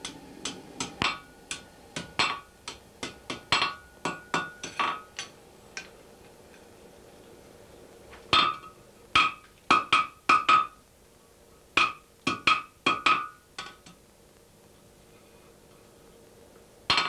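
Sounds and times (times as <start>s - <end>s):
hammer striking iron on anvil: 0.0s - 5.3s, 8.3s - 10.8s, 11.8s - 14.0s.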